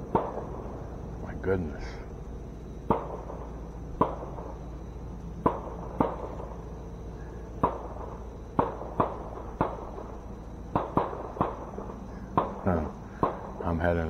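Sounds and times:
gunshots with echo: 0.0s - 0.7s, 2.8s - 4.6s, 5.4s - 6.4s, 7.5s - 10.1s, 10.7s - 13.7s.

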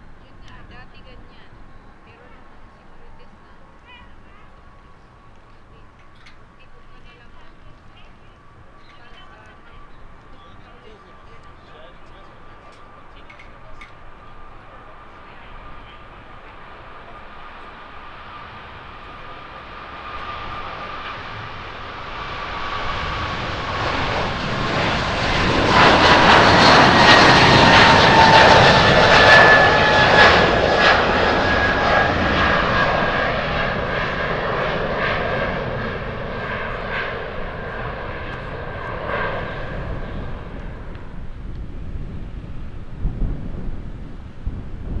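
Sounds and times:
jet engine whine dropping in pitch: 0.0s - 45.0s
jet engines roaring at takeoff: 0.0s - 45.0s.

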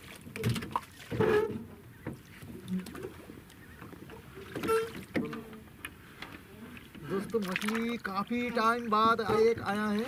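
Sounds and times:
knocks and scrapes on wooden boat: 0.4s - 3.0s, 8.5s - 10.0s.

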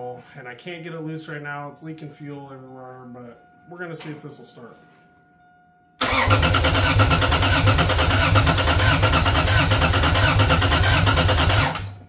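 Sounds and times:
engine cranking on starter motor: 6.0s - 12.0s.

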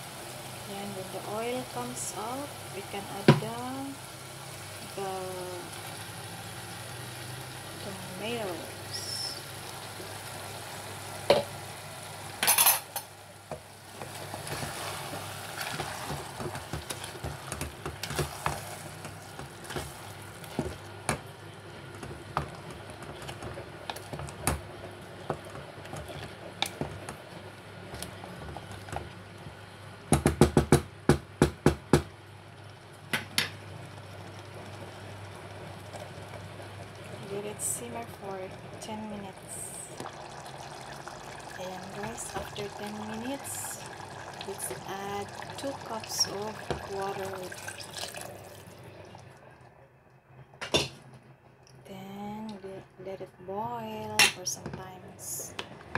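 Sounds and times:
wooden spatula stirring thick curry: 13.9s - 20.9s.

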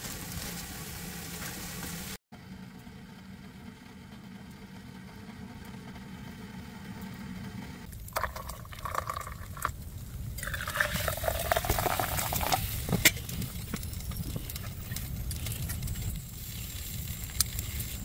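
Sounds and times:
hot water pouring into metal mug: 8.0s - 9.8s, 10.4s - 12.8s.

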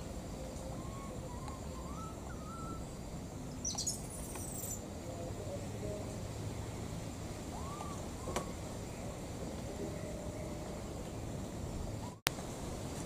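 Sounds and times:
low background noise: 0.0s - 13.0s
baby monkey coo calls: 0.6s - 2.8s
high-pitched chirping: 3.6s - 4.8s.

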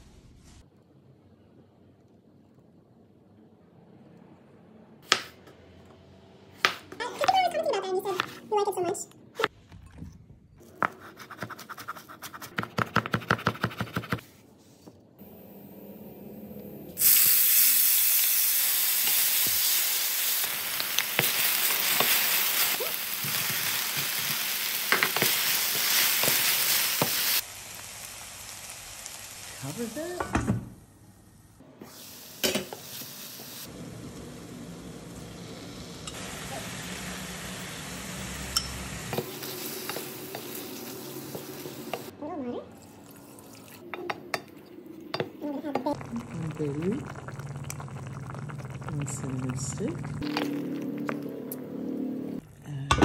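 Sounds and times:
vegetables sizzling in hot oil: 17.0s - 30.3s, 31.9s - 42.1s.

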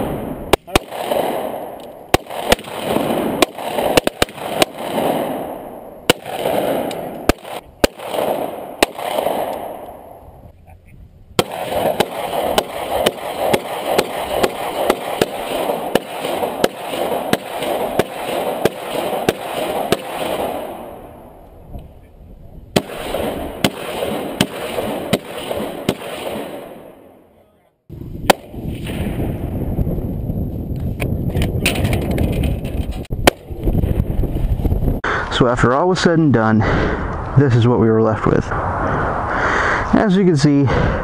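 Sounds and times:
rapid gunfire: 0.0s - 9.8s, 11.4s - 20.8s, 22.8s - 27.0s.

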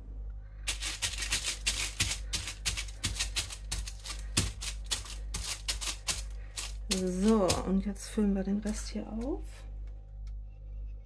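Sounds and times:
rhythmic rattling scrapes of plaster: 0.7s - 7.8s.

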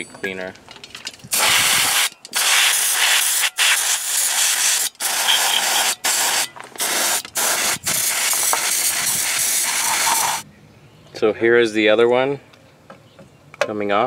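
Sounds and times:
aerosol can spraying: 1.3s - 10.4s.

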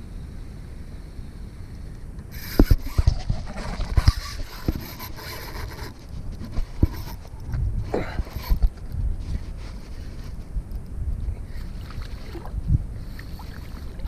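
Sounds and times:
light wind rumble: 0.0s - 14.0s
hand rubbing against camera: 2.4s - 10.6s.

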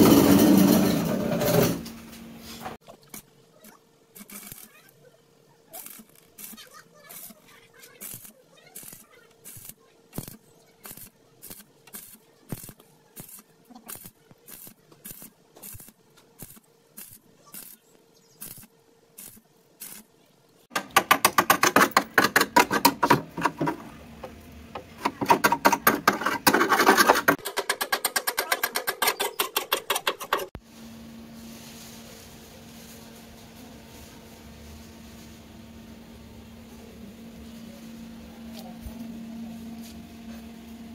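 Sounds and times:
arc welding bursts: 4.1s - 5.0s, 5.7s - 20.2s
chipping hammer striking metal: 20.7s - 23.1s.

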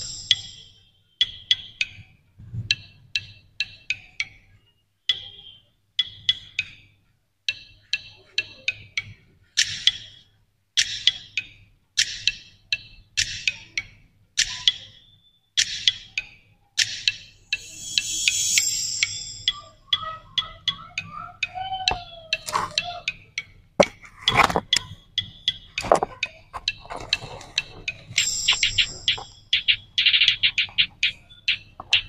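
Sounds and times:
electronic music through earbuds: 0.0s - 2.1s, 14.4s - 32.0s.

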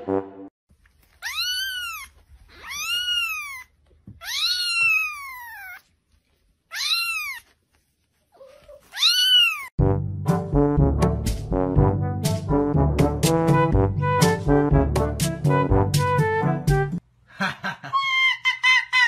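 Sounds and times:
brass music: 0.0s - 0.5s, 9.8s - 17.0s
kitten mewing: 1.2s - 5.8s, 6.7s - 7.5s.

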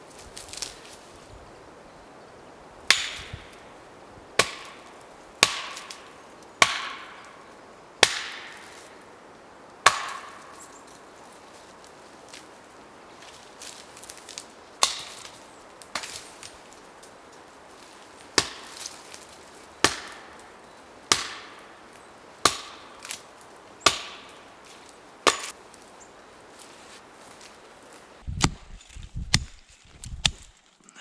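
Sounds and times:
hatchet chopping wood: 2.9s - 3.6s, 4.4s - 7.3s, 8.0s - 8.8s, 9.8s - 10.6s, 14.8s - 16.2s, 18.4s - 18.9s, 19.8s - 20.4s, 21.1s - 21.7s, 22.4s - 23.2s, 23.8s - 24.4s, 25.2s - 25.6s.

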